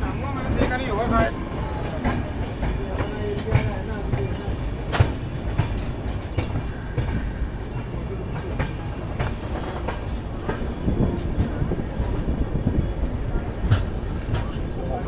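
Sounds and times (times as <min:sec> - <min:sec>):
train wheels rumbling on track: 0:00.0 - 0:15.0
wheels clacking over rail joints: 0:00.4 - 0:15.0.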